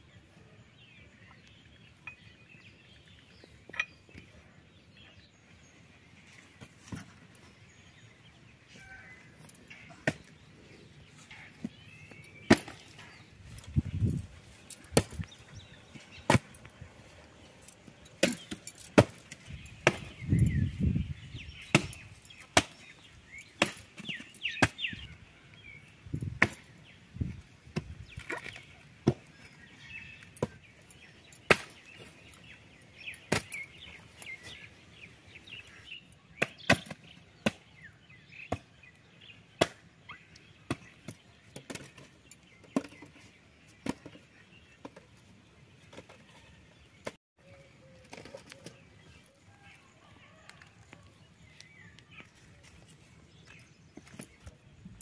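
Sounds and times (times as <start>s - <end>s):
small birds chirping: 0.0s - 55.0s
axe chopping logs: 9.9s - 10.3s, 12.4s - 13.1s, 16.2s - 16.6s, 18.2s - 20.2s, 21.6s - 22.8s, 23.6s - 25.0s, 26.3s - 26.7s, 27.7s - 29.3s, 31.4s - 31.9s, 33.2s - 33.6s, 36.4s - 37.8s, 38.4s - 38.7s, 39.6s - 39.9s, 40.6s - 42.0s.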